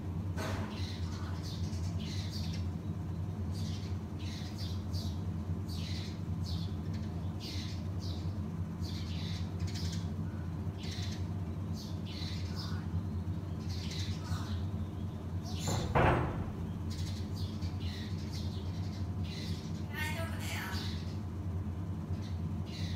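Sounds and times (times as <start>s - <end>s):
sparrows chirping: 0.0s - 22.9s
steady low hum: 0.0s - 22.9s.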